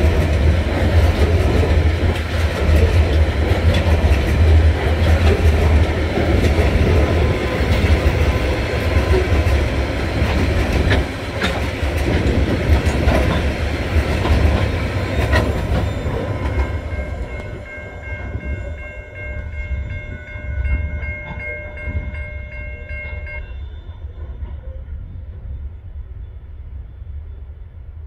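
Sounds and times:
freight train rolling past: 0.0s - 28.0s
level crossing bell ringing: 16.0s - 23.6s.

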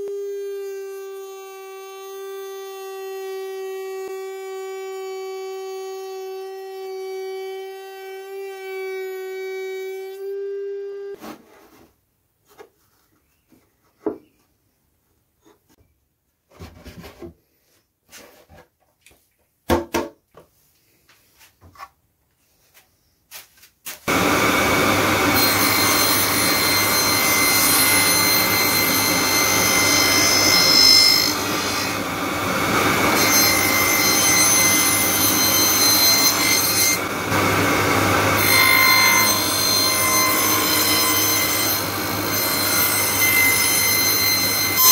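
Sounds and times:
router motor whining: 0.0s - 11.1s, 24.1s - 44.9s
table saw running: 24.1s - 44.9s.

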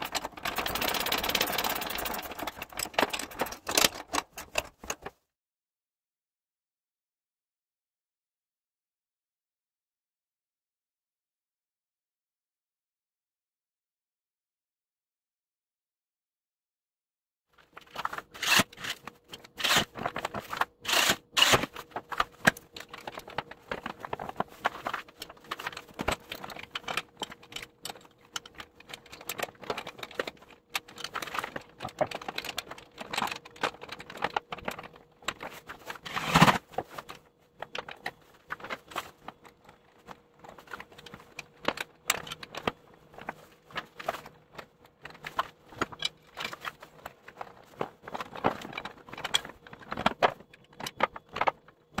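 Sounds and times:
faint steady hum: 17.6s - 52.0s.

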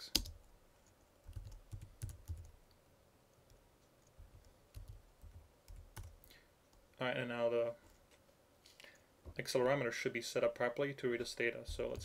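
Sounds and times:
typing on a computer keyboard: 0.0s - 2.5s, 3.5s - 6.2s.

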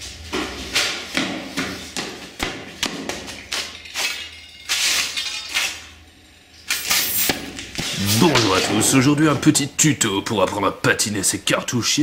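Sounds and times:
footsteps on concrete floor: 0.0s - 3.8s.

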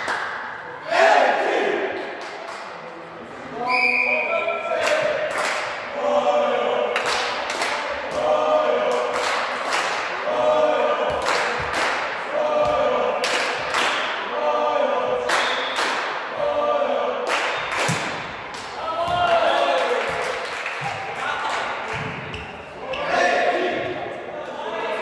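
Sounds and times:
sharp claps: 0.0s - 0.5s, 4.8s - 5.8s, 7.0s - 8.3s, 8.9s - 10.2s, 11.1s - 12.2s, 13.2s - 14.2s, 15.2s - 16.2s, 17.2s - 22.0s
group of voices chanting: 0.8s - 2.1s, 4.8s - 17.7s, 22.8s - 25.0s.

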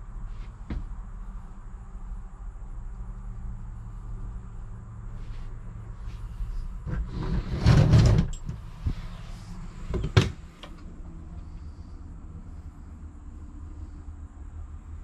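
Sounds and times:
low steady hum: 0.0s - 15.0s
door scraping slide: 6.8s - 10.7s.

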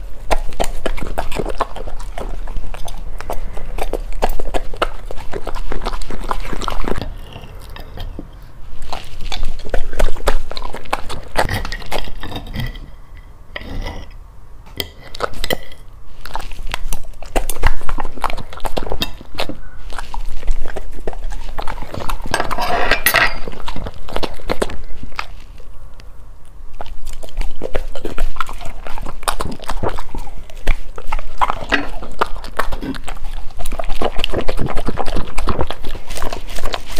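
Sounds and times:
dog chewing and smacking wetly: 0.0s - 12.8s, 14.8s - 36.9s
knife and fork clinking on plate: 22.3s - 23.6s.

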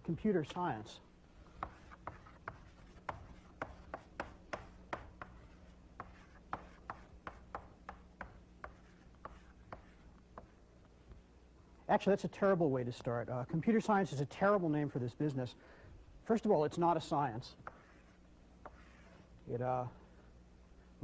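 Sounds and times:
faint steady hum: 0.0s - 21.0s
chalk writing on chalkboard: 1.6s - 10.6s, 17.6s - 19.3s.

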